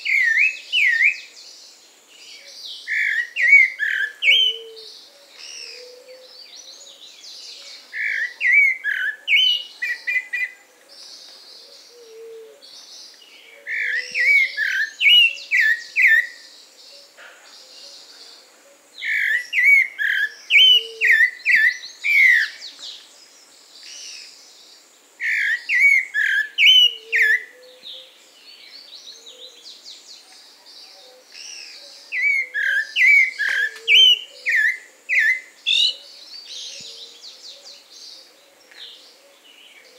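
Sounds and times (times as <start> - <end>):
thrush singing whistled notes: 0.0 - 1.5, 2.3 - 6.5, 7.8 - 10.6, 13.1 - 17.2, 19.0 - 22.7, 23.8 - 28.1, 31.3 - 38.3
faint bird chirps: 0.0 - 39.9.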